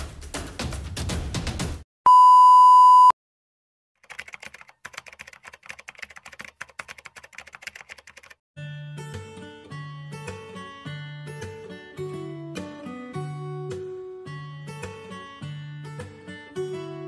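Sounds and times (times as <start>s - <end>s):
drum-led music: 0.0s - 1.8s
loud steady beep: 2.1s - 3.2s
keyboard typing clicks: 4.0s - 8.4s.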